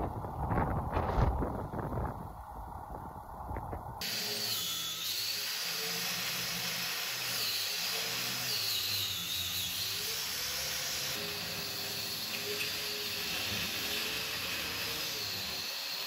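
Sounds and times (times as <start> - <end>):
power tool whining under load: 4.0 - 16.0.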